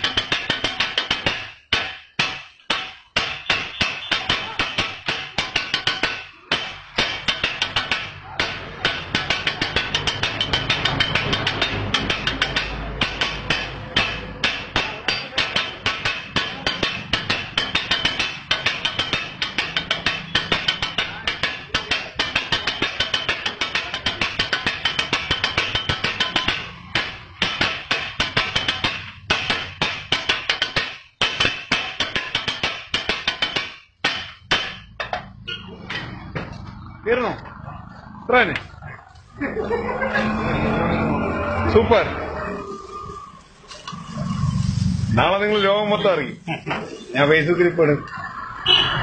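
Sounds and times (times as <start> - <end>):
metal blades chopping on griddle: 0.0 - 35.2.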